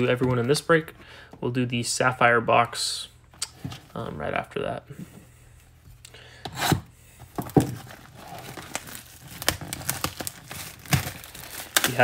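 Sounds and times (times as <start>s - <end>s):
plastic shrink wrap tearing: 7.8s - 12.0s.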